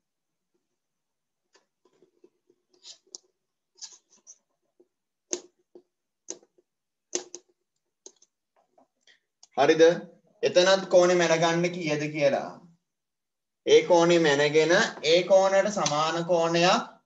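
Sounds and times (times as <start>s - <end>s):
marker scratching on whiteboard: 1.6s - 8.3s.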